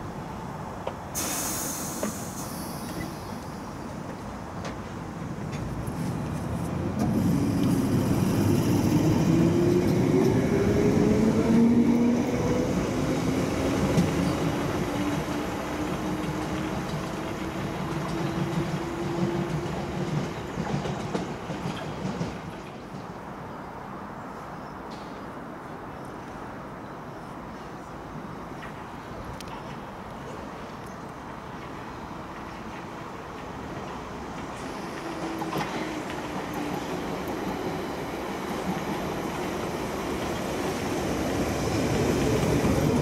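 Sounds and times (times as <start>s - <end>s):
air hiss: 1.1s - 3.7s.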